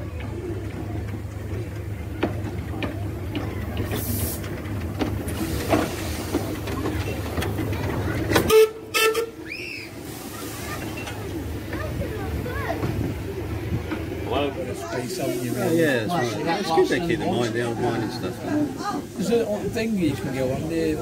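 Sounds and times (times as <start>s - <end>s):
steam locomotive rumbling: 0.0s - 21.0s
train whistle toot: 8.5s - 9.7s.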